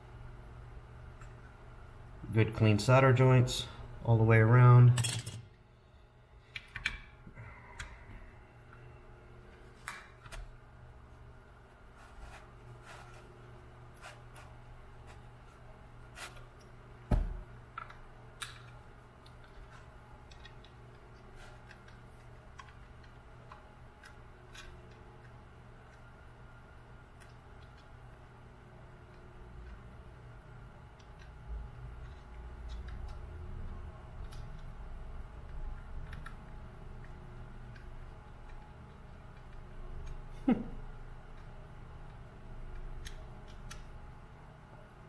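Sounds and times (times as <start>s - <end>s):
small clicks and taps: 32.0s - 34.7s.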